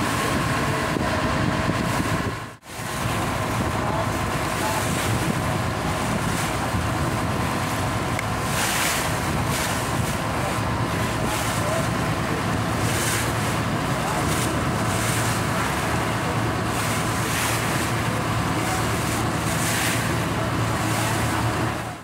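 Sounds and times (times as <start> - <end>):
wind on microphone: 0.0 - 16.1
boat engine running: 0.0 - 22.0
water rushing along hull: 0.0 - 22.0.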